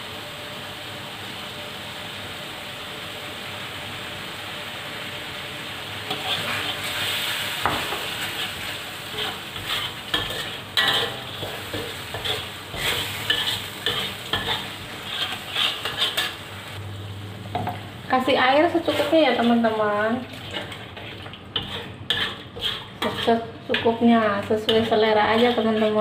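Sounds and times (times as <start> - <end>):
sauce frying hiss: 0.0 - 26.0
spatula scraping metal wok: 6.0 - 16.7, 18.7 - 26.0.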